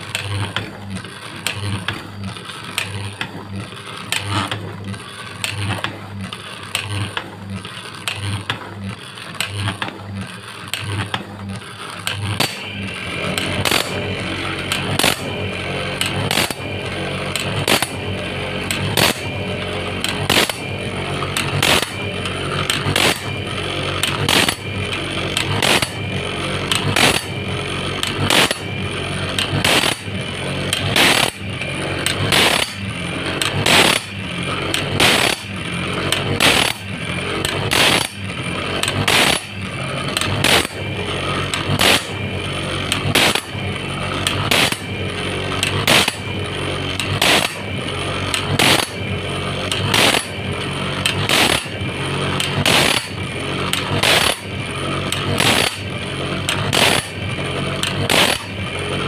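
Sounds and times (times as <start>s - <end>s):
electric motor humming: 0.0s - 59.0s
grinding wheel grinding saw teeth: 0.0s - 59.0s.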